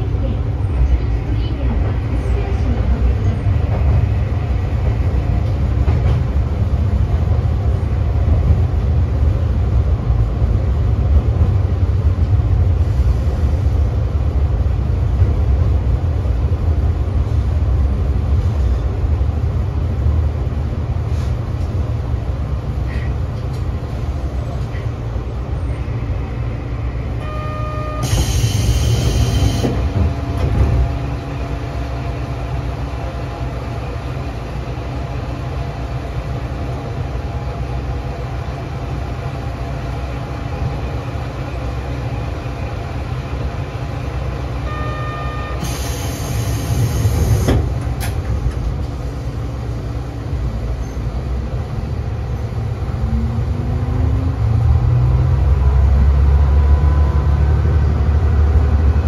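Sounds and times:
train engine and wheel rumble: 0.0s - 59.0s
brief beep: 27.2s - 28.3s, 44.7s - 45.8s.

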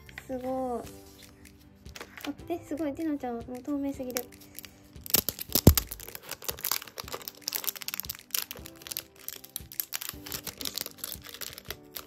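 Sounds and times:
quiet background music: 0.0s - 12.0s
plastic packaging crinkling: 4.0s - 12.0s.

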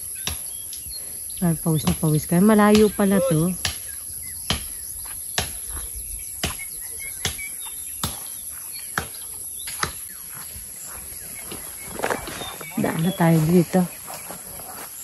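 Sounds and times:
faint bird chirps: 0.0s - 15.0s
high insect trill: 0.0s - 15.0s
walking footsteps: 7.6s - 15.0s.

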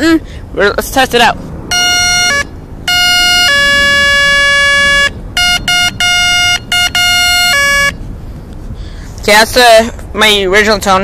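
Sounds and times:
electronic bicycle horn beeping: 1.7s - 8.0s.

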